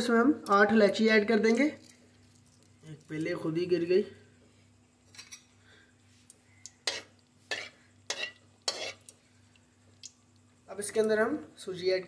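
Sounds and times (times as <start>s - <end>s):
metal spoon scraping metal pan: 6.8s - 9.1s.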